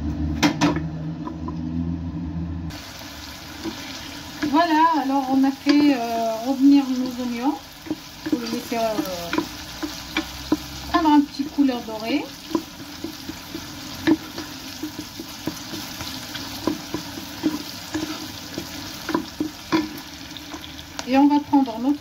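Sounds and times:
onion sizzling in oil: 0:02.7 - 0:22.0
spoon scraping and knocking pot: 0:12.3 - 0:20.8.

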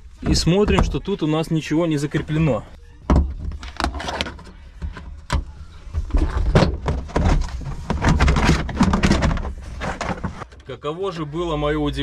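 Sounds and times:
hands rattling car tailgate parts: 0:03.2 - 0:10.6.

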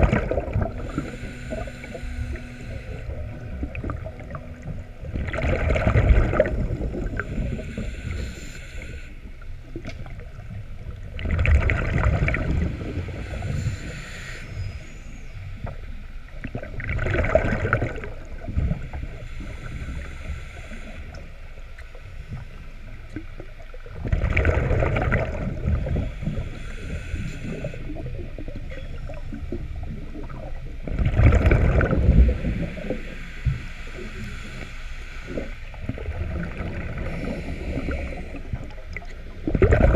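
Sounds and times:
diver exhaling bubbles: 0:00.0 - 0:02.0, 0:02.6 - 0:08.2, 0:24.0 - 0:28.3, 0:35.3 - 0:39.9
regulator hiss: 0:00.1 - 0:04.8, 0:06.3 - 0:10.5, 0:12.6 - 0:16.0, 0:17.7 - 0:23.8, 0:25.3 - 0:30.5, 0:31.8 - 0:39.4.

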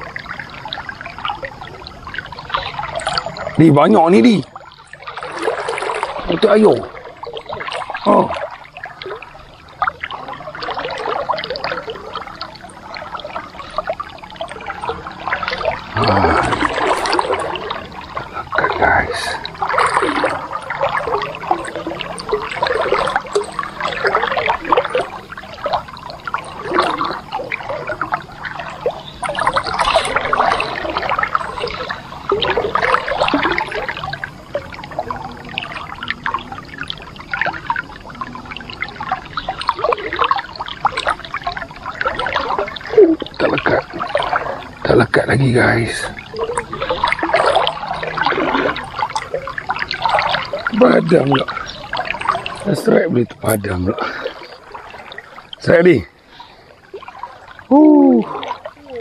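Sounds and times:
water splashing and trickling: 0:00.0 - 0:59.0.

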